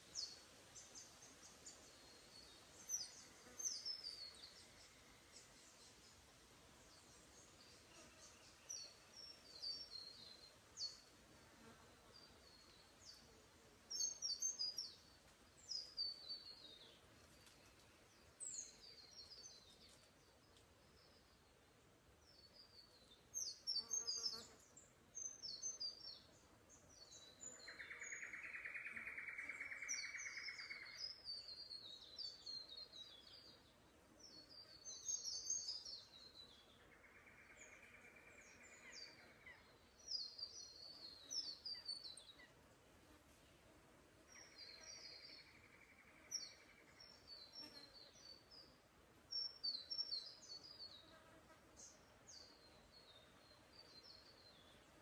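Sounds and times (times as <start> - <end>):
small birds twittering: 0.0 - 11.1, 22.2 - 42.6, 44.3 - 51.2.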